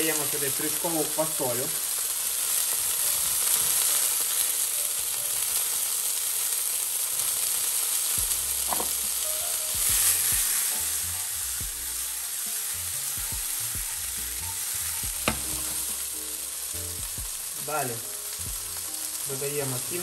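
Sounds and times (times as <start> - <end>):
vegetables sizzling in frying pan: 0.0 - 20.0
pan knocking on hob: 8.7 - 9.0, 15.2 - 15.8.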